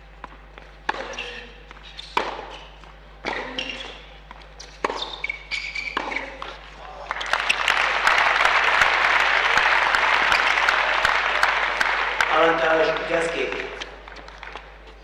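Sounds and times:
racket hitting ball: 0.9s - 2.6s, 3.2s - 4.0s, 4.6s - 6.6s
crowd applauding: 7.0s - 14.8s.

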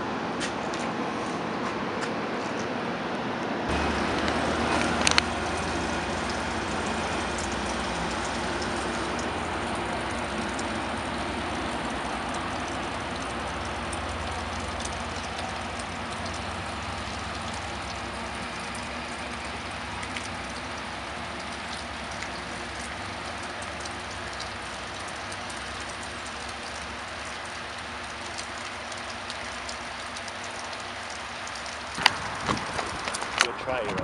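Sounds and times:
rain pattering: 3.7s - 34.0s.

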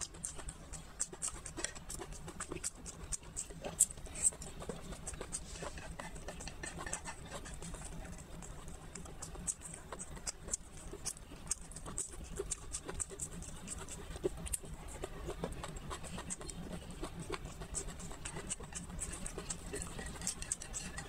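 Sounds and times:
low steady hum: 0.0s - 21.0s
person chewing with wet mouth clicks: 0.0s - 21.0s
small crackles and clicks: 0.0s - 21.0s.

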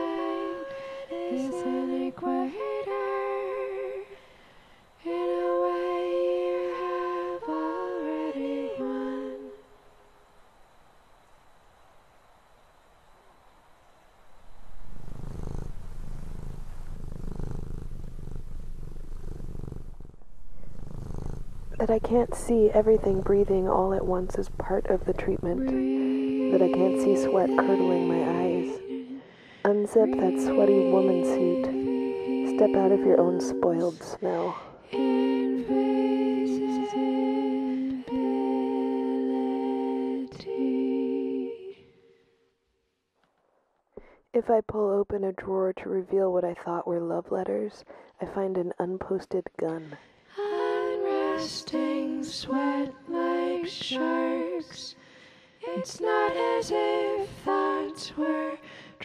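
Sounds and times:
person humming: 0.0s - 3.3s, 20.4s - 39.0s
fast-pulsing purring rumble: 14.3s - 25.8s, 29.7s - 34.2s.

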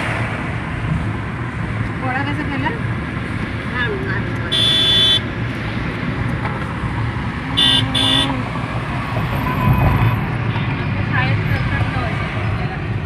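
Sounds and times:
car horn toots: 4.5s - 5.3s, 7.6s - 8.4s.

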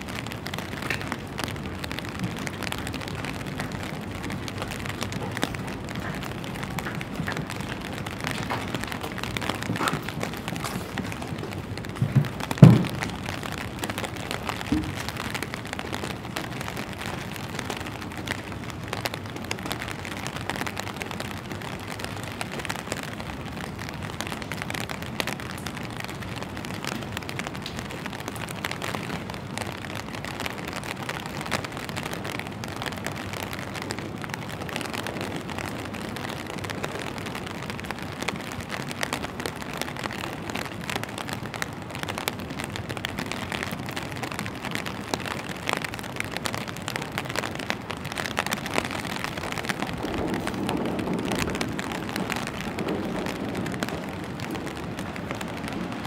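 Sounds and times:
rain on wet pavement: 0.0s - 56.0s.

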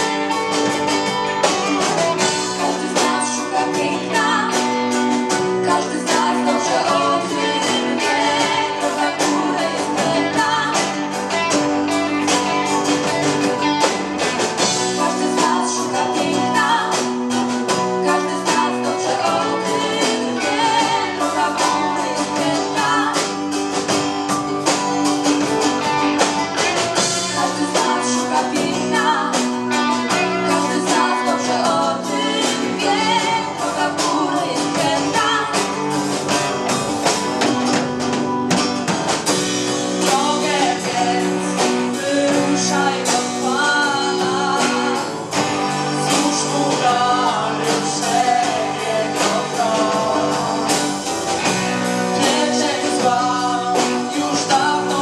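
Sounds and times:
guitar accompaniment: 0.0s - 55.0s
women singing into microphones: 2.0s - 11.5s, 14.6s - 23.4s, 26.9s - 35.9s, 40.0s - 51.0s, 52.1s - 55.0s.

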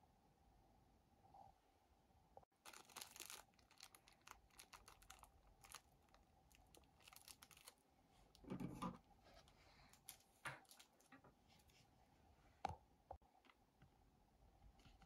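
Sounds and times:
crinkling and clicking handling noise: 2.6s - 11.8s.

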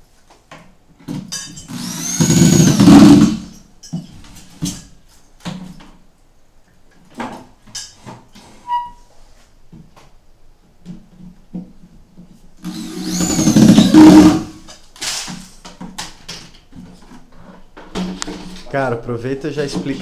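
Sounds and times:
electric drill driving a screw: 1.7s - 3.5s, 12.6s - 15.3s.

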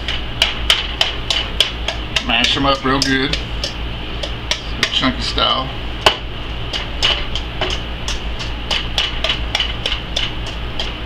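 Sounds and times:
wire whisk clinking on metal bowl: 1.0s - 5.1s.

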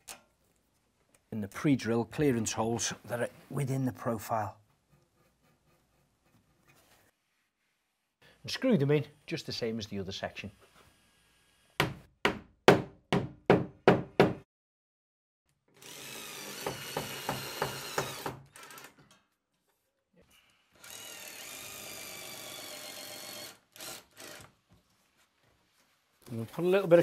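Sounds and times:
cordless drill driving screws: 15.8s - 19.0s, 20.8s - 24.6s.

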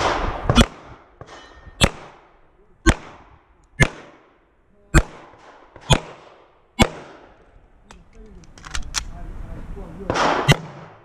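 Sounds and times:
pistol shots with echo: 0.0s - 7.4s, 10.1s - 11.0s.

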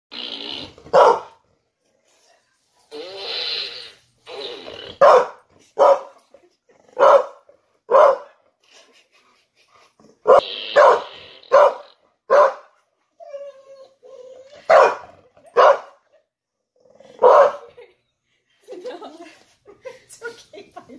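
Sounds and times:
dog barking: 0.9s - 1.4s, 5.0s - 6.2s, 7.0s - 8.4s, 10.3s - 12.8s, 14.7s - 16.0s, 17.2s - 17.7s.

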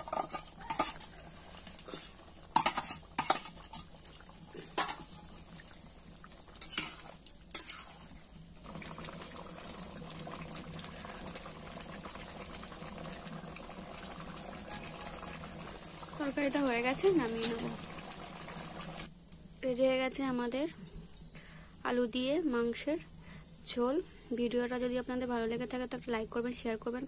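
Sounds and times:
metal spatula scraping a pot: 0.0s - 1.2s, 2.5s - 4.0s, 4.6s - 5.1s, 6.6s - 8.1s
curry simmering: 0.0s - 19.1s.

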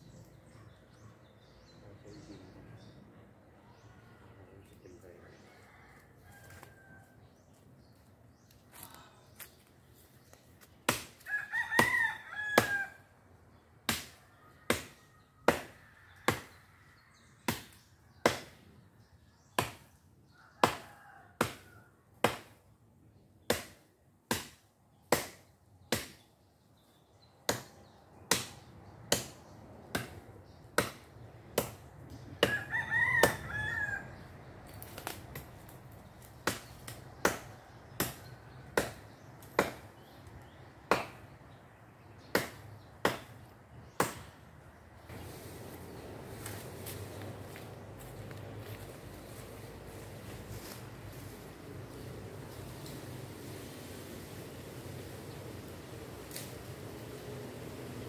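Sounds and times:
rooster crowing: 5.4s - 7.2s, 11.3s - 13.1s, 32.4s - 34.3s
tool chopping into tree trunk: 10.8s - 12.9s, 13.8s - 16.6s, 20.6s - 22.6s, 23.4s - 26.3s, 27.5s - 30.2s, 36.2s - 41.3s, 42.2s - 44.4s.

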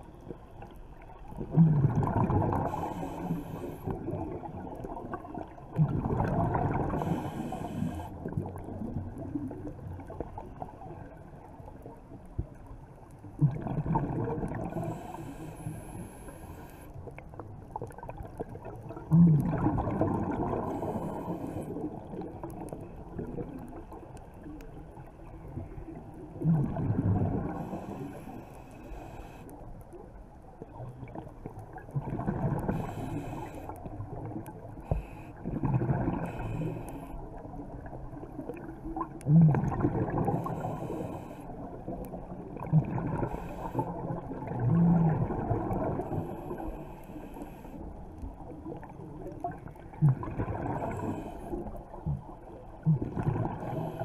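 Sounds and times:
low underwater rumble: 0.0s - 54.0s
diver exhaling bubbles: 1.4s - 3.4s, 5.8s - 8.4s, 19.0s - 21.2s, 26.4s - 28.0s, 39.3s - 41.0s, 42.5s - 46.2s, 52.8s - 54.0s.

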